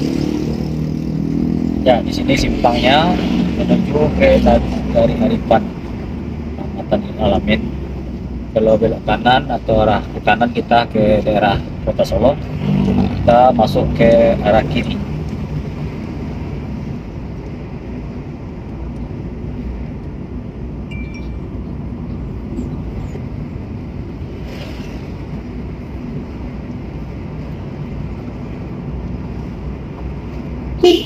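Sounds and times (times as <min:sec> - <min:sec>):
low engine hum: 0:00.0 - 0:31.0
road and wind noise: 0:00.0 - 0:31.0
thin high tone: 0:20.9 - 0:21.6.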